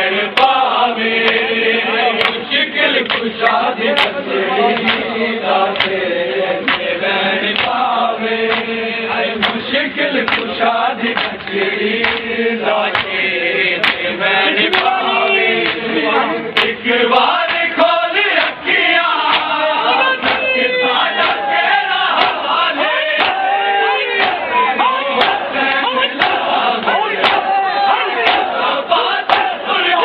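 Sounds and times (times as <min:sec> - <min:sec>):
crowd of men chanting: 0:00.0 - 0:30.0
hands slapping bare chests: 0:02.2 - 0:02.4, 0:03.0 - 0:04.2, 0:04.8 - 0:05.1, 0:05.7 - 0:06.0, 0:06.6 - 0:06.9, 0:07.5 - 0:07.8, 0:08.5 - 0:08.7, 0:09.4 - 0:10.6, 0:11.2 - 0:13.2, 0:13.8 - 0:14.1, 0:14.7 - 0:15.0, 0:19.2 - 0:19.6, 0:20.2 - 0:20.5, 0:21.2 - 0:21.5, 0:22.1 - 0:22.5, 0:23.2 - 0:23.5, 0:25.2 - 0:27.5, 0:28.2 - 0:28.5.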